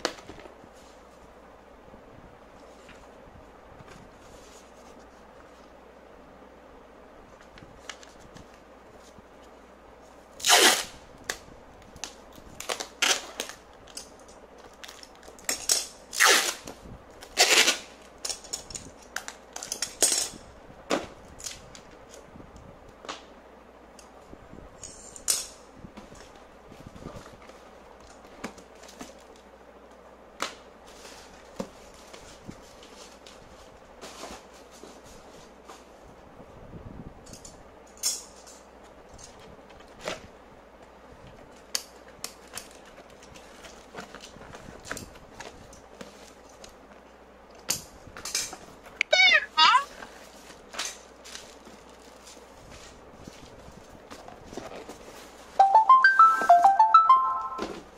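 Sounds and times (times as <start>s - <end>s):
packing tape pulled off roll: 10.4s - 20.4s.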